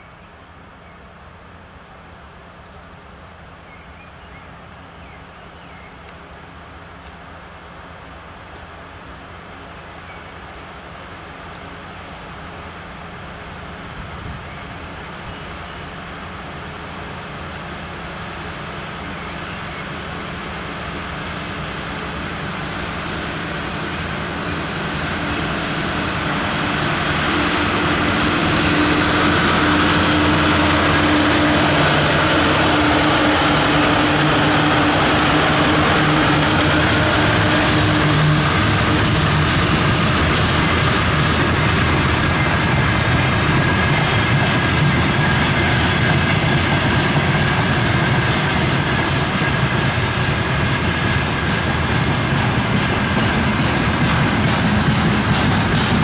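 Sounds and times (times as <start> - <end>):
diesel locomotive engines: 0.0 - 56.0
train wheels clicking over rail joints: 21.5 - 56.0.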